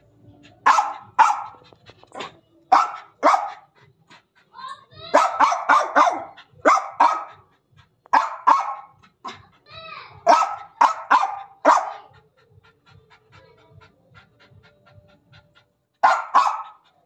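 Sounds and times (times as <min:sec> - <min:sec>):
dog panting: 0:00.0 - 0:17.0
dog barking sharply: 0:00.7 - 0:01.6, 0:02.7 - 0:03.6, 0:05.1 - 0:07.3, 0:08.1 - 0:08.9, 0:10.2 - 0:12.0, 0:16.0 - 0:16.8.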